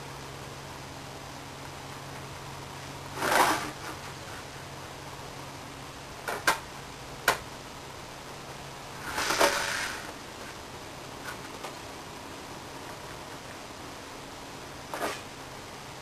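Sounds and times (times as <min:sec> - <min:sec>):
steady low hum: 0:00.0 - 0:16.0
tool sliding across board: 0:03.2 - 0:04.4, 0:09.0 - 0:10.2, 0:14.9 - 0:15.3.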